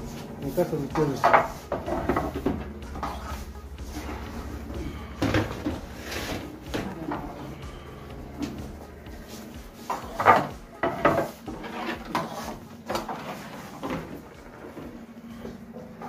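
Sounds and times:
metal baking trays clattering: 0:00.2 - 0:03.4, 0:09.3 - 0:15.1.

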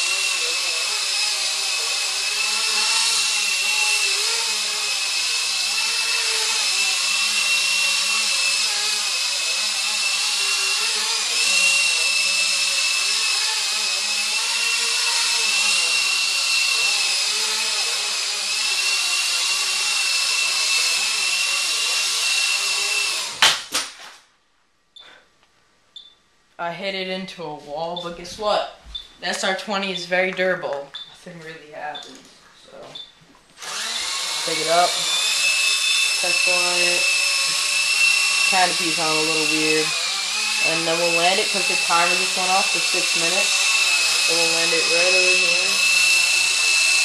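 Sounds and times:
rc helicopter motor whine: 0:00.0 - 0:23.4, 0:33.6 - 0:47.0.

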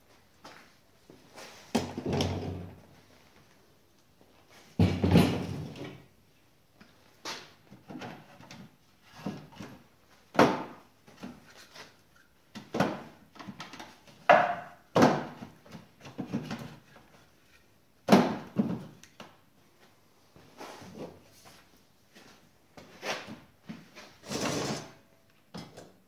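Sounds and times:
wood sliding scrapes: 0:24.2 - 0:25.0.

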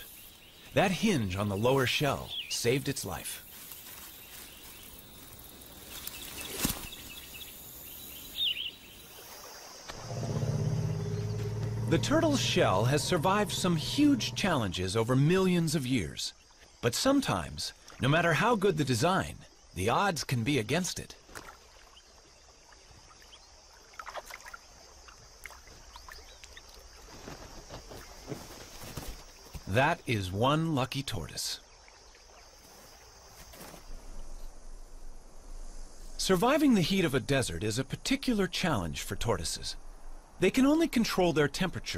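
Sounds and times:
steady background hiss: 0:00.0 - 0:24.0, 0:24.6 - 0:41.9
faint bird chirps: 0:03.5 - 0:09.7, 0:10.4 - 0:14.5
low steady drone: 0:10.0 - 0:14.9.

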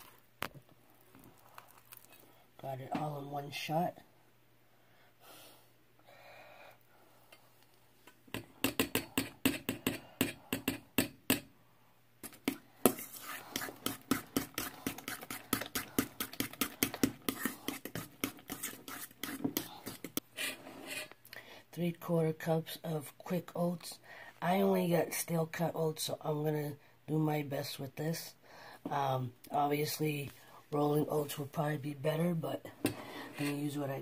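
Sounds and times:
utensil beating batter in metal bowl: 0:12.2 - 0:21.1.

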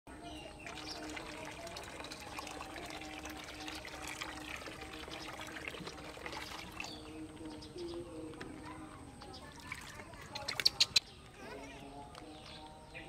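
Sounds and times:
water pouring into a basin: 0:00.2 - 0:07.5, 0:09.4 - 0:10.7.

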